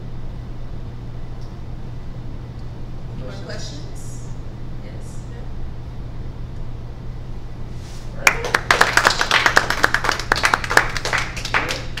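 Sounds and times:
low room hum: 0.0 - 12.0
people clapping: 8.2 - 12.0.

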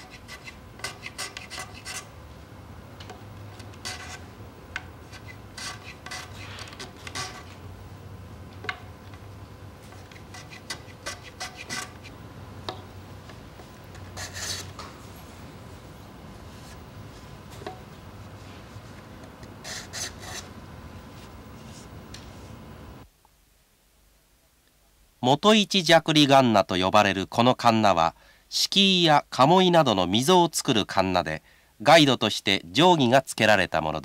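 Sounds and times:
hand plane shaving wood: 14.2 - 14.7.

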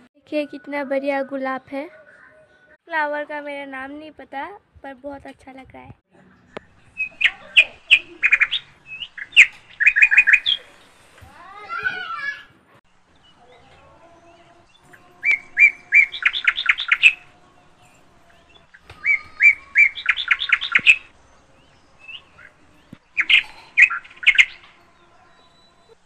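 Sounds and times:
songbird singing: 6.3 - 11.0, 12.9 - 26.0.

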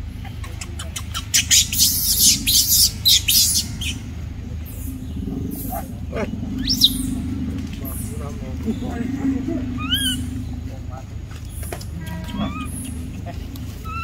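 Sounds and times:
baby monkey squealing: 0.2 - 4.0, 6.6 - 7.1, 9.8 - 10.3, 12.2 - 13.0.

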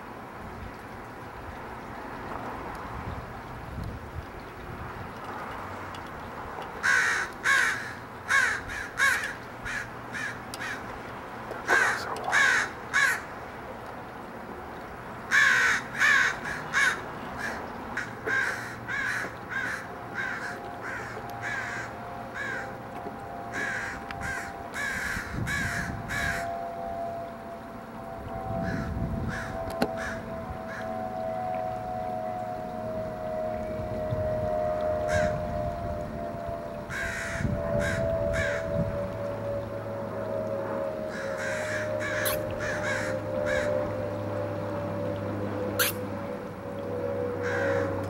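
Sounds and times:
crows cawing: 6.8 - 10.9, 11.6 - 13.3, 15.3 - 22.8, 23.5 - 26.5, 28.6 - 31.0, 35.1 - 35.4, 36.9 - 38.8, 41.0 - 43.9, 45.8 - 46.0, 47.4 - 48.0.

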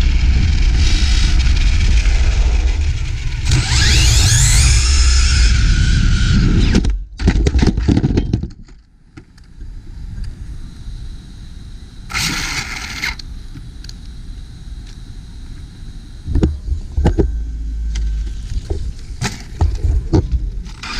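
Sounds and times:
rc truck running on pavement: 0.0 - 6.9, 20.7 - 20.9
hissing burst: 12.1 - 13.2.

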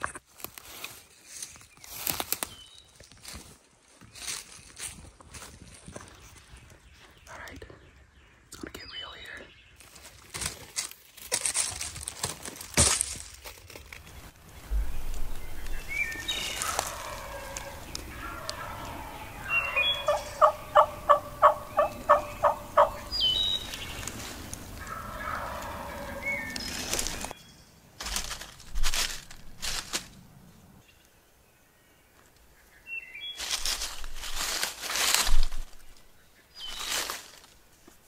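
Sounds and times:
turkey gobbling: 16.4 - 23.6, 24.8 - 26.5
turkey yelps: 16.5 - 23.1.

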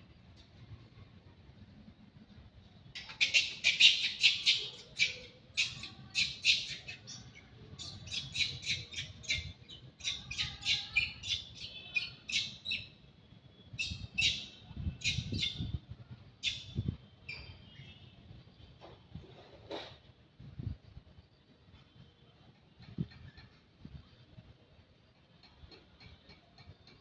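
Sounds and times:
small birds chirping: 3.0 - 13.0, 13.7 - 15.8, 16.4 - 18.1.

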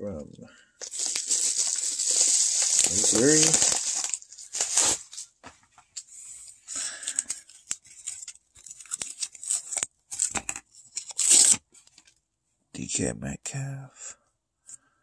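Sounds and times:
cardboard and plastic rustling: 0.8 - 12.2.

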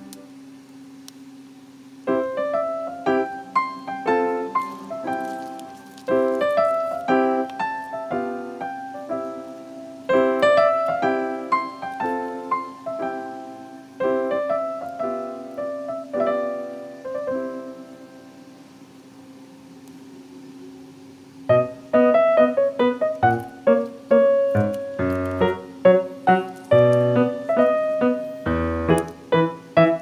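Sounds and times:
bouncy piano music: 2.1 - 18.3, 21.5 - 30.0.

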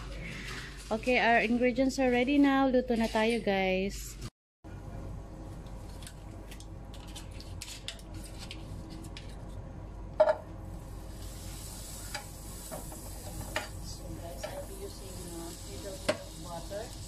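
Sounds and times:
butter sizzling in frying pan: 11.0 - 17.0.

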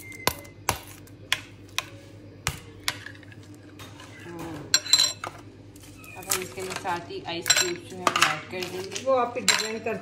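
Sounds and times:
metal spoon clinking glass: 9.5 - 9.9.

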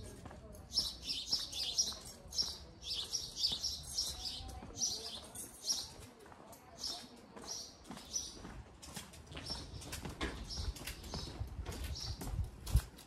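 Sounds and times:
songbirds twittering: 0.7 - 6.1, 6.8 - 8.6, 9.3 - 12.4.

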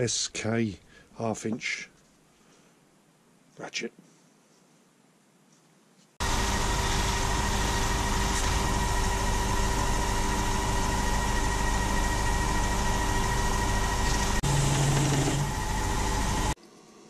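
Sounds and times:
abrasive wheel buffing metal: 6.2 - 16.6
polishing motor humming: 6.2 - 16.6.

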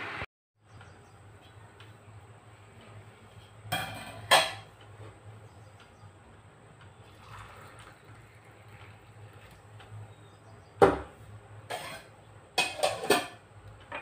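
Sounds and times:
metal pot clanking: 3.7 - 4.8, 11.7 - 14.0.

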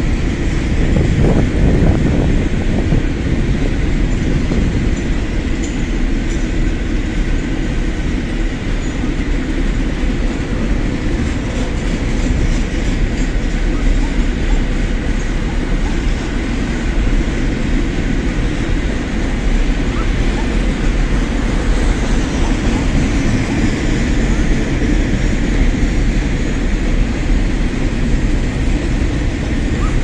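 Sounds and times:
freight train wheels rumbling: 0.0 - 30.0.

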